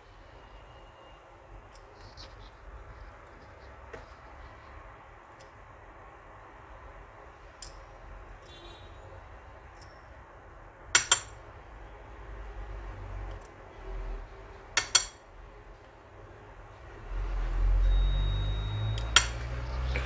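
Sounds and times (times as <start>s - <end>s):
metal spatula tapping glass dish: 11.0s - 11.3s, 14.8s - 15.2s.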